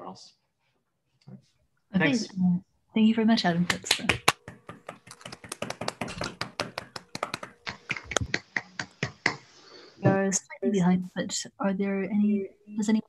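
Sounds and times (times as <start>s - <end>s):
hand claps over video call: 3.6s - 9.5s.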